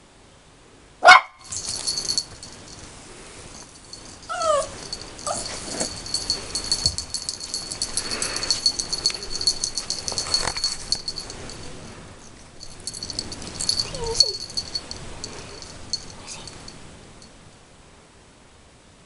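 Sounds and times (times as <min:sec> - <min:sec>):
fast light rattling: 0:01.4 - 0:16.8
puppy whining: 0:04.1 - 0:11.4, 0:13.4 - 0:16.1.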